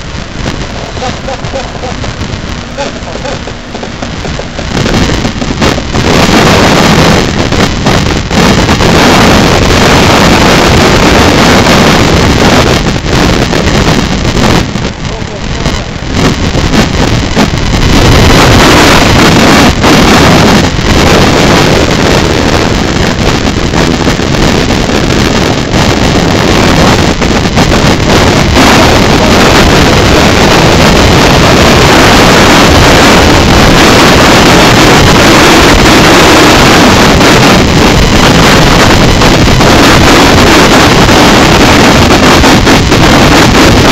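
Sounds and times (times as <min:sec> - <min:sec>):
water rushing along hull: 0:00.0 - 0:43.9
wind buffeting microphone: 0:00.0 - 0:43.9.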